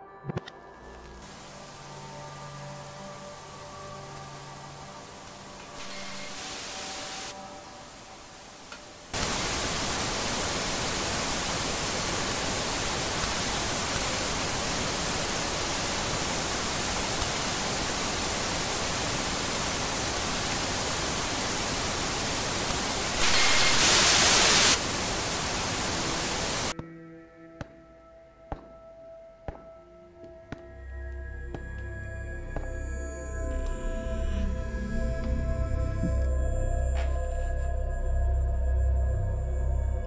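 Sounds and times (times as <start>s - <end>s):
loud static hiss: 1.2s - 26.8s.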